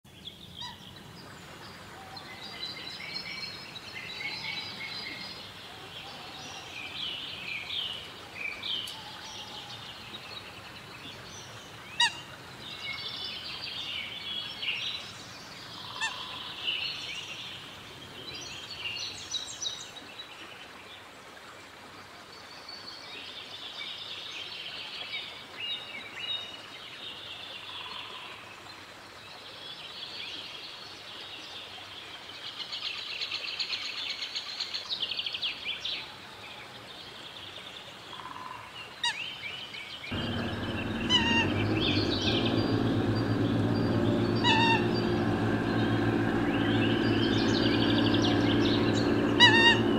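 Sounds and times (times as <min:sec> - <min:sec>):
birds chirping: 0:40.1 - 0:49.9.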